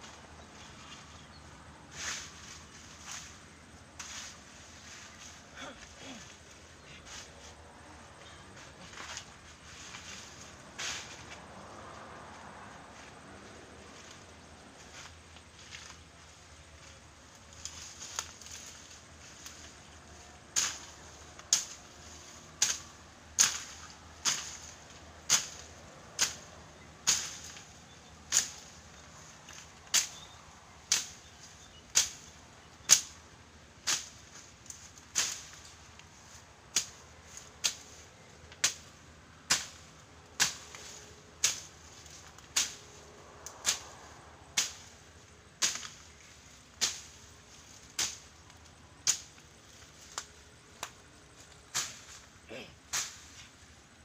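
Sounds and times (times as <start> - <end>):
machete slashing through weeds: 20.5 - 33.2, 33.8 - 35.8, 39.5 - 45.0, 45.6 - 48.4, 52.9 - 53.4.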